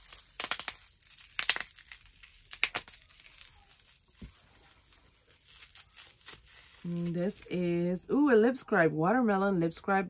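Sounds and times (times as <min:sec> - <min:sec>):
wrapping crinkling and tearing: 0:00.0 - 0:07.9.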